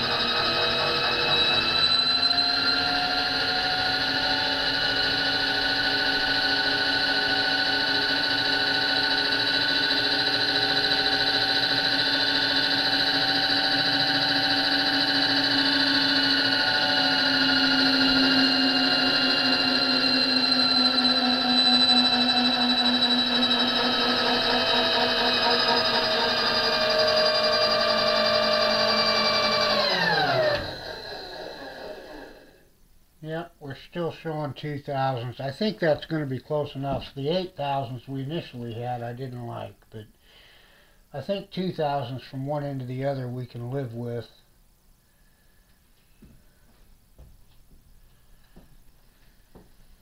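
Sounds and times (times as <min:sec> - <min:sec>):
electric motor humming with whine: 0:00.0 - 0:32.6.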